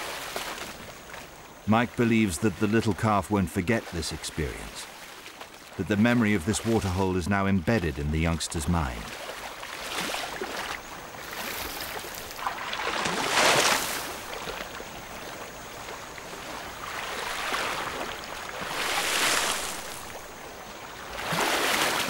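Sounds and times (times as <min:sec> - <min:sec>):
elephants splashing through water: 0:00.0 - 0:22.0.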